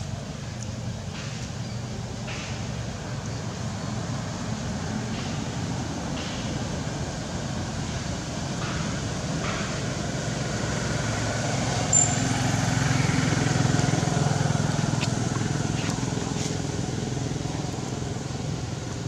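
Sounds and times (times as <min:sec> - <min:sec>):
vehicle engine rumbling: 0:00.0 - 0:19.0
high-pitched chirp: 0:11.9 - 0:12.3.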